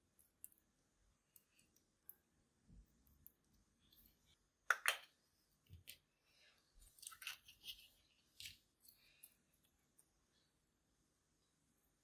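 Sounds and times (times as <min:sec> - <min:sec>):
makeup containers clicking: 0:04.7 - 0:05.1.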